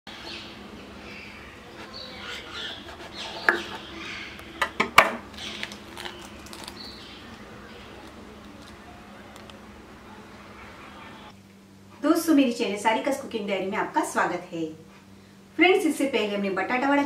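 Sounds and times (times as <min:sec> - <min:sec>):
crust crackling: 0:02.7 - 0:11.3.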